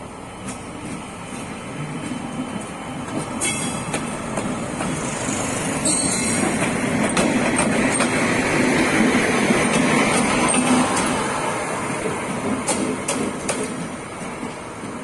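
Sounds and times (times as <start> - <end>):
locomotive rumble passing: 0.0 - 15.0
high-pitched squeaks: 5.8 - 6.5.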